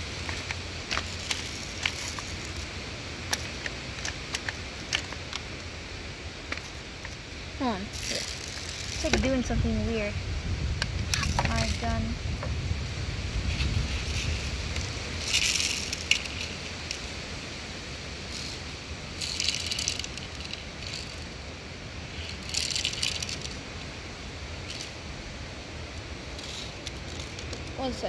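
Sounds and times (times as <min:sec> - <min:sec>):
plastic pistol rattling: 0:00.2 - 0:02.7, 0:03.3 - 0:05.6, 0:08.0 - 0:09.2, 0:15.2 - 0:17.0, 0:18.4 - 0:21.3, 0:22.3 - 0:23.6, 0:24.6 - 0:24.9, 0:26.4 - 0:27.8.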